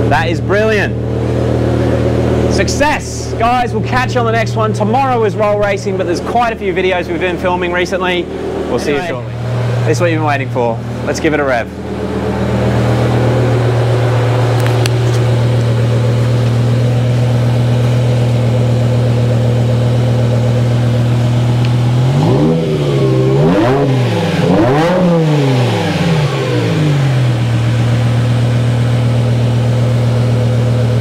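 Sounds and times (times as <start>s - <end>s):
car engine idling and revving: 0.0s - 31.0s.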